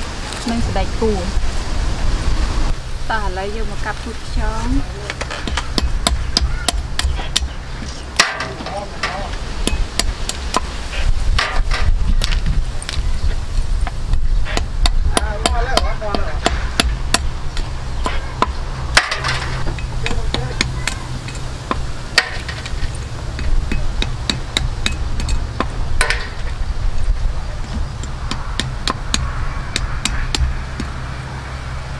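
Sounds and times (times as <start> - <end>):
cleaver chopping on wooden block: 5.2 - 7.6, 14.5 - 19.3, 27.7 - 31.0.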